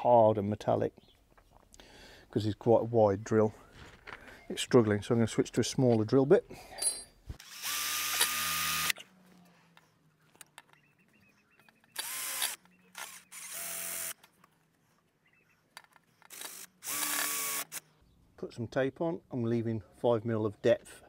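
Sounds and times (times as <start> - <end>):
power drill motor whine: 7.4 - 9.0, 12.0 - 14.2, 16.3 - 17.8.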